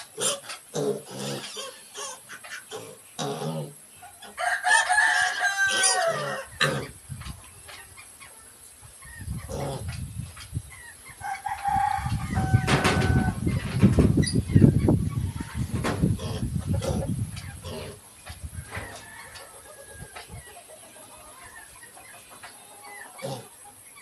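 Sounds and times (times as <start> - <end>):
rooster crowing: 4.3 - 6.8, 11.2 - 13.5, 18.6 - 20.3.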